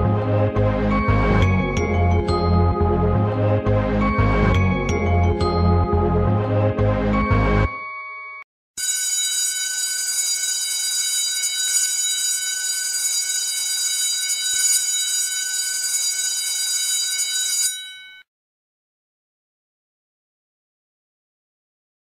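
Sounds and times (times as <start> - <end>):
electric bell ringing: 7.6 - 18.3.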